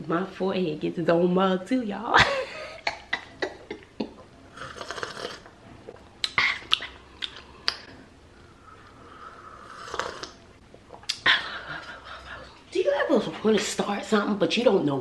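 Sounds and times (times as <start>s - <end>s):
person sipping from a mug: 4.5s - 11.2s
mouth clicks: 4.8s - 8.0s, 9.8s - 11.3s
person breathing: 6.5s - 10.2s.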